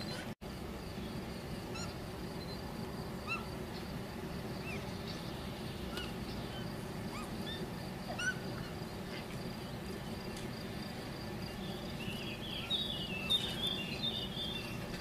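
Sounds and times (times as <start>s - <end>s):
steady background hiss: 0.0s - 15.0s
high-pitched animal chirps: 3.2s - 3.5s, 7.1s - 8.7s.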